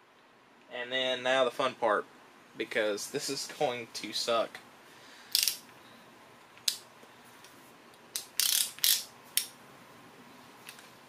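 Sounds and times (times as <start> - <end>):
torque wrench clicks: 5.3 - 5.6, 8.1 - 9.5
wrench ratcheting: 5.3 - 5.6, 8.2 - 9.5.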